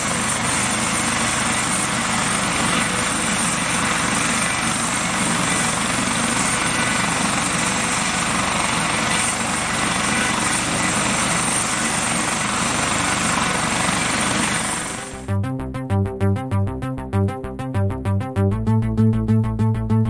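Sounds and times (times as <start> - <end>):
high turbine whine: 0.0 - 15.3
helicopter engine and rotor roar: 0.0 - 15.6.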